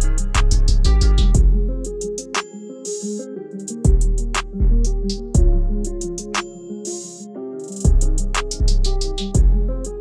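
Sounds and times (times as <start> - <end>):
bass line: 0.0 - 2.0, 3.9 - 6.3, 7.9 - 10.0
electronic drum beat: 0.0 - 3.0, 3.6 - 10.0
hi-hats: 0.0 - 10.0.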